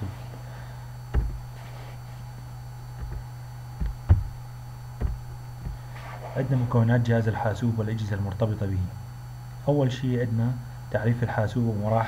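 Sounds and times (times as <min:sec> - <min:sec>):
steady low hum: 0:00.0 - 0:12.0
short dull thumps: 0:01.0 - 0:06.1.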